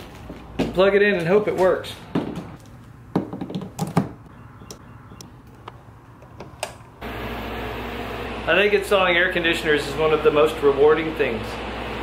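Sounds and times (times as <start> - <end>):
air conditioner fan whoosh: 7.0 - 12.0.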